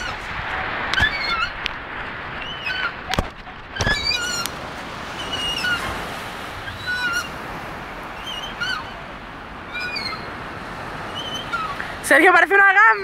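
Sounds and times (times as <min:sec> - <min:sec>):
surf washing: 0:00.0 - 0:13.0
swing squeaking: 0:03.8 - 0:04.5, 0:05.2 - 0:05.9, 0:06.6 - 0:07.3, 0:09.7 - 0:10.3.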